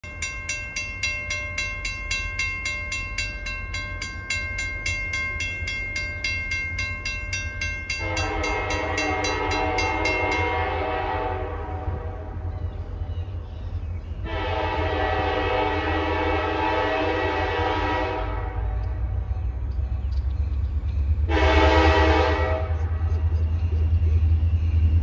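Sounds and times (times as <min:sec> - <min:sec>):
crossing warning bell ringing: 0:00.0 - 0:11.4, 0:16.6 - 0:25.0
locomotive horn: 0:08.0 - 0:12.5, 0:14.2 - 0:18.9, 0:21.2 - 0:23.3.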